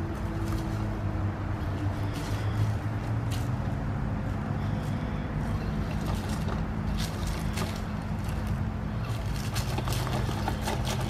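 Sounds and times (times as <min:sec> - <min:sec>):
leaves and twigs crackling: 0:00.0 - 0:11.0
toy car electric motor whining: 0:09.1 - 0:11.0.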